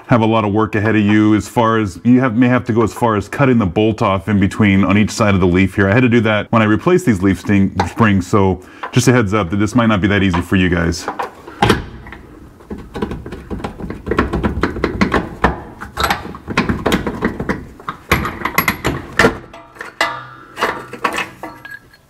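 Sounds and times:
metal bolt clicks and rattles: 0:13.0 - 0:22.0
high metallic rings: 0:19.6 - 0:22.0.

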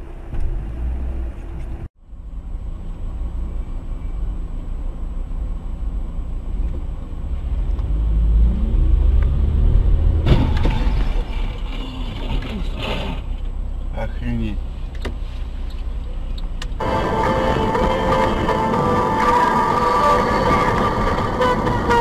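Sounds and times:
car driving on road: 0:00.0 - 0:22.0
sudden loud noise: 0:08.1 - 0:13.2.

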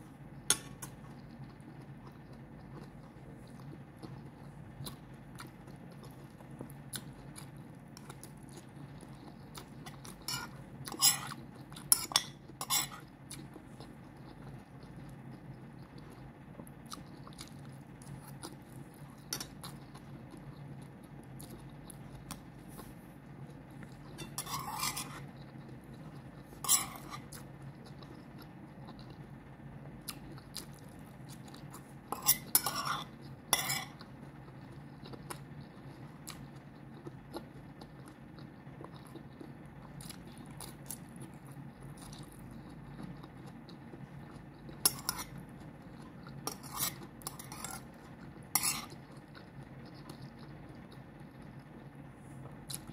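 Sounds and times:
steady low hum: 0:00.0 - 0:52.9
quiet chewing: 0:00.4 - 0:52.9
cutlery scraping on a plate: 0:10.2 - 0:13.0, 0:24.2 - 0:25.2, 0:26.6 - 0:27.2, 0:32.1 - 0:34.0, 0:44.8 - 0:45.3, 0:46.5 - 0:47.9, 0:48.5 - 0:49.0.

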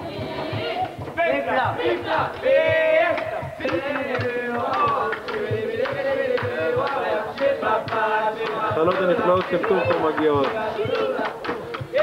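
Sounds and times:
steady low beat: 0:00.0 - 0:12.0
voices singing slow melody: 0:00.0 - 0:12.0.

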